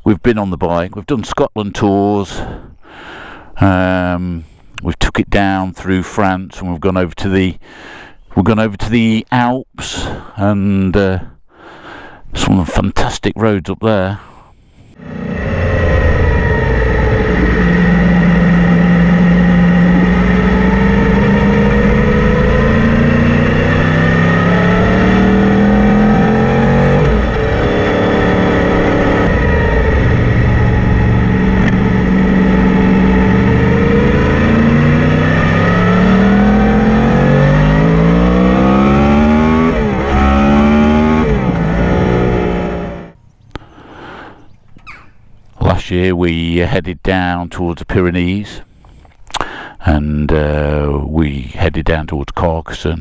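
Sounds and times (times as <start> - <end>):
motorcycle engine revving through gears: 15.0 - 43.2.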